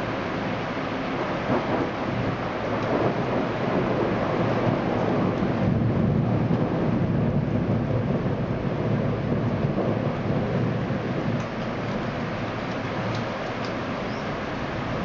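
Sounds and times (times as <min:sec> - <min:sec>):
steady rain: 0:00.0 - 0:15.0
thunder rolling: 0:01.5 - 0:13.4.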